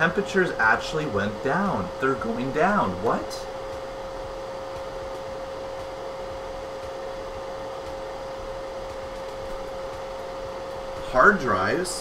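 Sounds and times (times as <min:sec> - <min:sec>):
computer cooling fans whooshing: 0:00.0 - 0:12.0
steady fan whine: 0:00.0 - 0:12.0.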